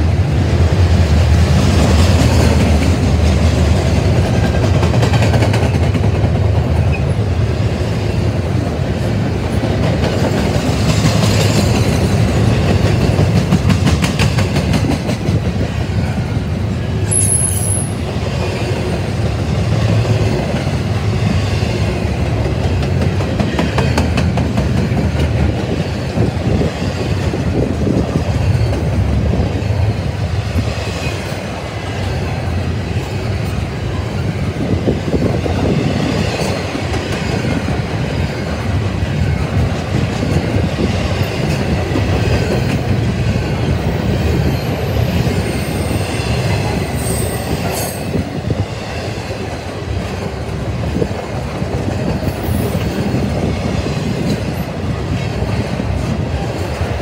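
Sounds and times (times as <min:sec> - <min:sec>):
train wheels on rail: 0:00.0 - 0:57.0
high wheel squeal: 0:17.1 - 0:18.0, 0:45.3 - 0:48.2.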